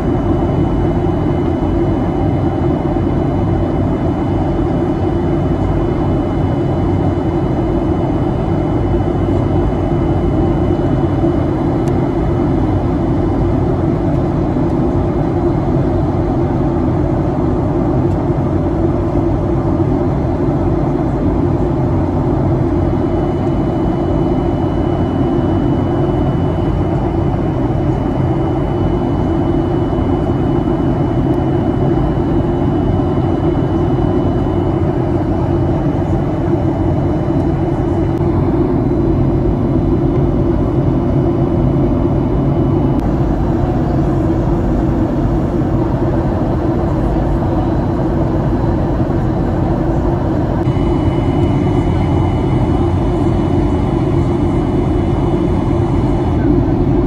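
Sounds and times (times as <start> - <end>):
jet engine rumble: 0.0 - 57.0
faint high whine: 22.7 - 57.0.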